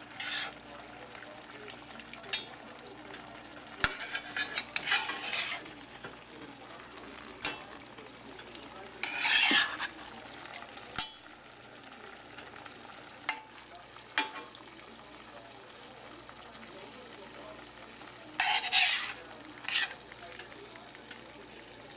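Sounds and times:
metal spatula scraping frying pan: 0.0 - 0.7, 2.3 - 6.3, 7.1 - 10.1, 17.9 - 21.2
faint sizzle: 0.0 - 21.9.

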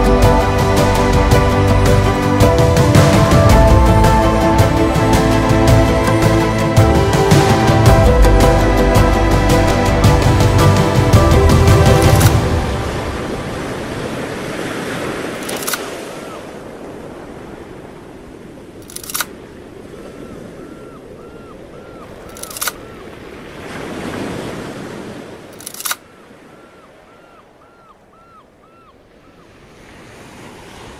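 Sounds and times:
surf washing over rocks: 0.0 - 21.2, 22.6 - 25.7
wind: 0.0 - 30.9
camera shutter clicks: 18.8 - 19.3.

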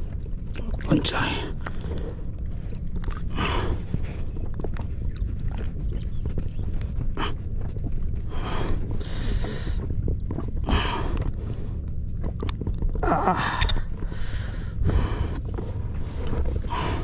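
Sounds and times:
steady low rumble: 0.0 - 17.0
man breathing hard: 13.4 - 15.6, 16.6 - 17.0.

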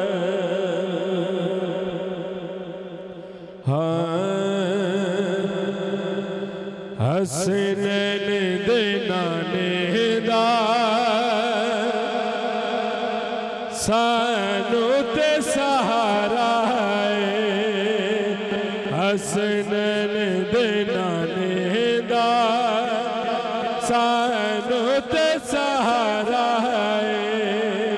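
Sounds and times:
man singing into a microphone: 0.0 - 27.9.

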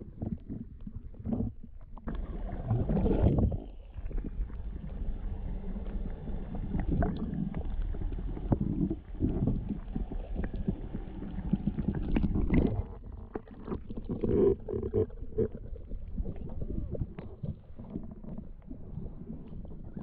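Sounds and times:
muffled underwater sloshing: 0.0 - 20.0
low rumble: 2.2 - 13.2.

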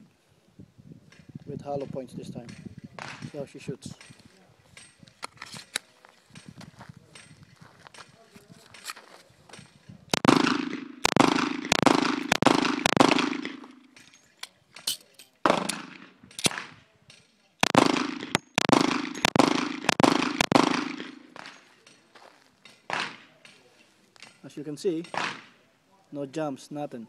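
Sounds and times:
pistol shots with echo: 10.1 - 14.0, 15.4 - 16.8, 17.6 - 21.7, 22.9 - 23.4, 25.1 - 25.6.

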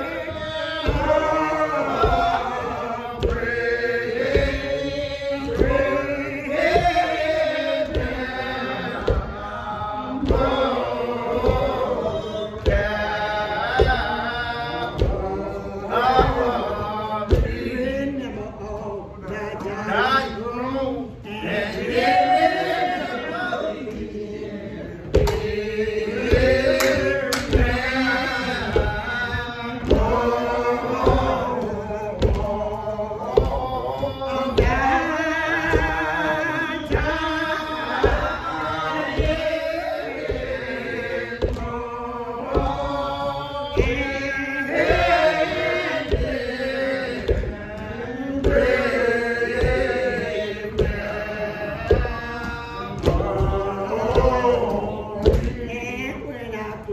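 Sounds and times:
hand claps keeping a beat: 0.0 - 56.9
woman singing a hymn: 25.1 - 56.9.

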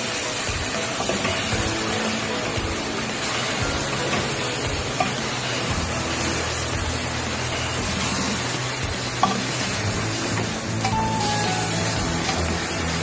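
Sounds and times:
meat sizzling in oil: 0.0 - 13.0
spatula stirring in pan: 0.0 - 13.0
spatula knocking pan: 8.9 - 9.7, 12.0 - 12.6.

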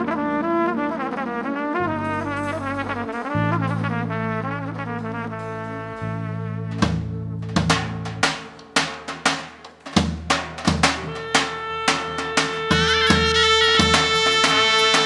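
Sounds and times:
trumpets and clarinet melody: 0.0 - 7.3, 10.9 - 15.0
low held bass notes: 0.0 - 8.6
heavy drum strikes: 6.7 - 15.0.

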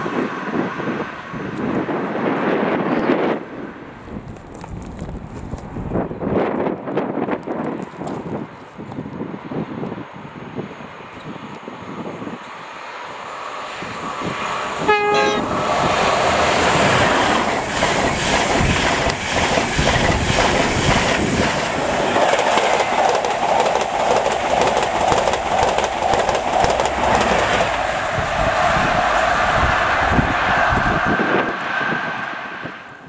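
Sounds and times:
train passing at speed: 0.0 - 33.0
train horn blast: 14.8 - 15.7
wheel clatter over rail joints: 16.8 - 29.0.

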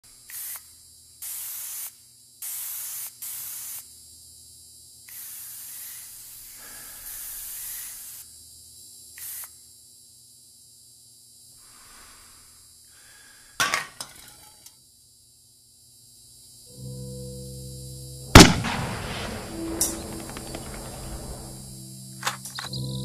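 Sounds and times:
aerosol spray can hissing: 0.3 - 3.9, 5.1 - 8.3, 9.2 - 9.6.

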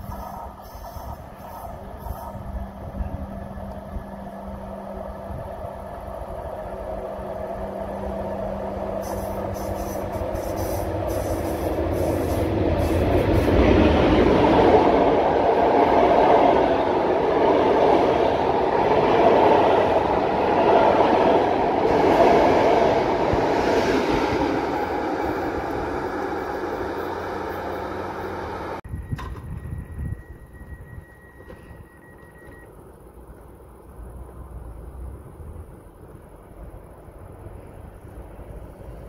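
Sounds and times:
train rumbling on track: 0.0 - 39.0.

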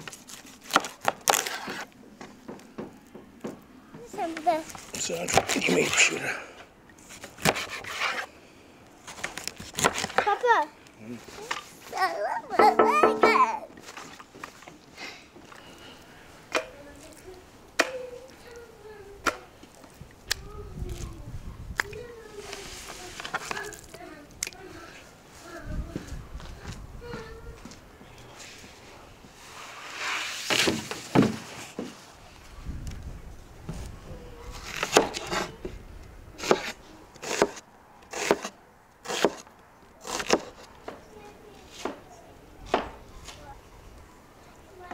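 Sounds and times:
knife slicing onion: 7.1 - 8.3, 36.4 - 39.4, 40.0 - 40.7
knife knocking on wooden board: 12.6 - 13.4.

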